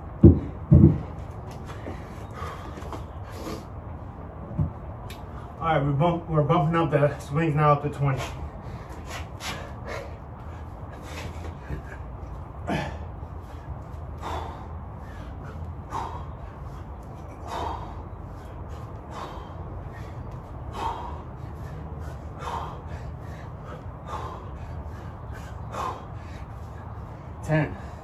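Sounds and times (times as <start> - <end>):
faint breathing: 1.6 - 4.1, 8.3 - 28.0.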